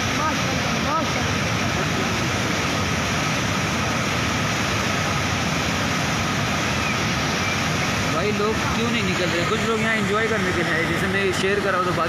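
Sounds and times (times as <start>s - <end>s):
flooded river rushing: 0.0s - 12.0s.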